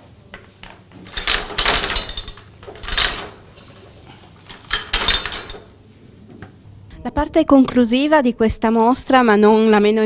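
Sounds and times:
printing press clanking: 1.1s - 3.5s, 4.5s - 5.7s.

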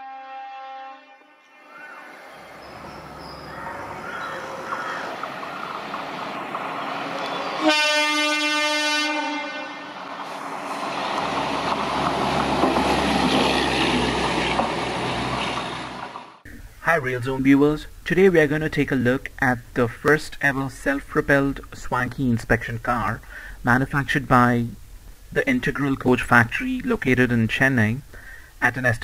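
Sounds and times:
horn blast: 0.0s - 2.6s, 7.4s - 10.1s
rail car rumbling on track: 1.7s - 16.4s.

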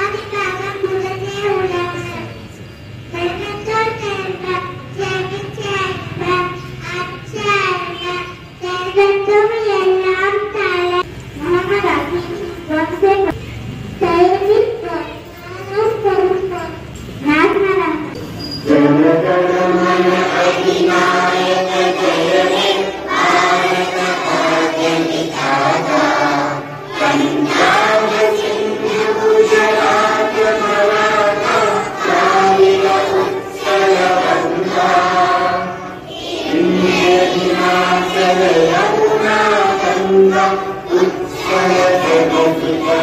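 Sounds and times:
children singing in unison: 18.6s - 43.0s.

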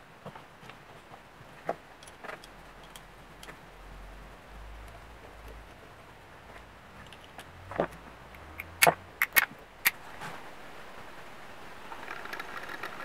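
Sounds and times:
small metal clicks and taps: 2.0s - 3.6s, 8.3s - 10.0s.

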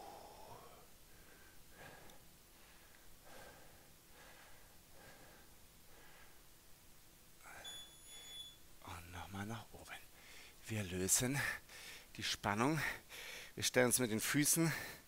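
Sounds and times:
man breathing faintly: 0.0s - 6.6s, 7.4s - 8.4s, 10.1s - 10.6s, 11.4s - 12.2s, 12.8s - 13.6s, 14.7s - 15.0s.

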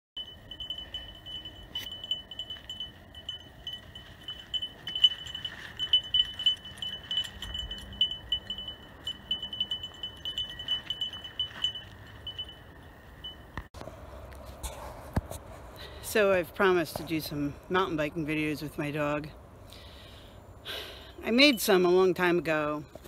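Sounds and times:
small bell jingling: 0.2s - 13.6s.

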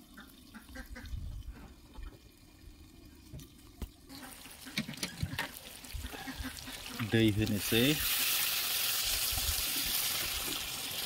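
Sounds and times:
chicken frying in oil: 4.1s - 11.0s.

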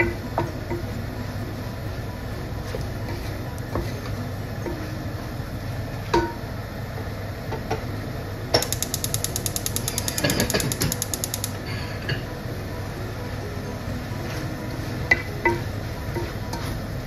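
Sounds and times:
wooden spoon stirring in a pot: 0.0s - 6.1s
rapid even clicking: 8.6s - 11.6s.

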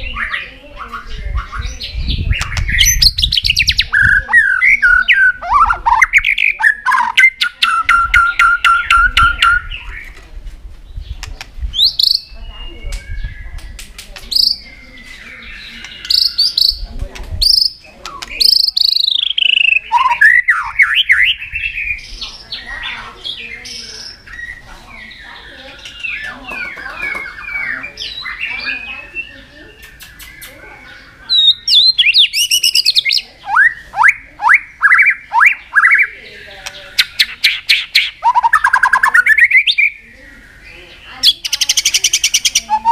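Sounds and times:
bird singing whistled phrases: 1.4s - 10.1s, 11.7s - 13.7s, 17.4s - 22.1s, 25.8s - 36.2s, 37.0s - 40.0s, 40.6s - 42.9s
sharp bird clicks: 2.3s - 3.9s, 11.1s - 14.7s, 15.7s - 21.1s, 25.7s - 27.5s, 29.7s - 30.6s, 31.3s - 39.9s.

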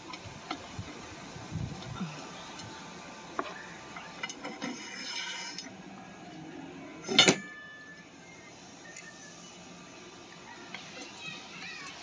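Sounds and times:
metal scrape: 4.2s - 5.7s
loud ringing metal clank: 7.0s - 8.0s.

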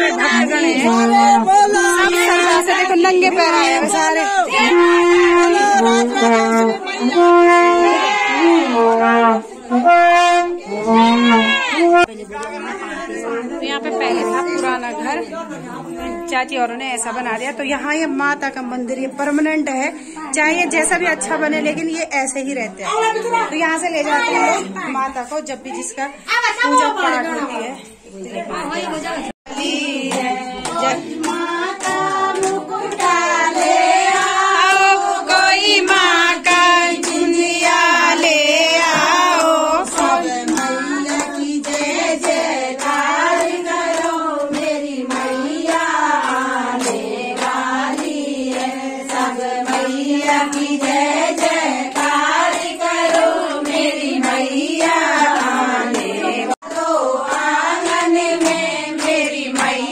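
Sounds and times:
rhythmic hand-clapping: 0.0s - 12.8s, 29.5s - 59.9s
group singing devotional song: 0.0s - 16.3s, 27.8s - 59.9s.

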